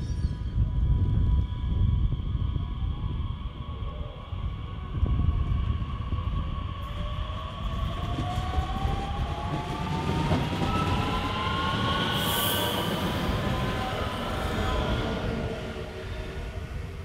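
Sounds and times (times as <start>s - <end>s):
train wheels rumbling: 5.0s - 17.0s.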